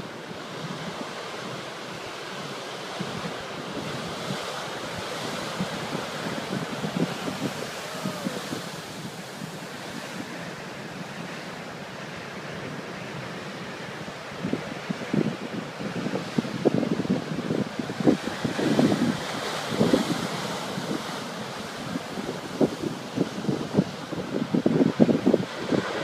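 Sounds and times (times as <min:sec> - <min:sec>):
wind buffeting microphone: 0:00.0 - 0:11.6, 0:14.4 - 0:26.0
surf breaking on rocks: 0:17.5 - 0:23.6.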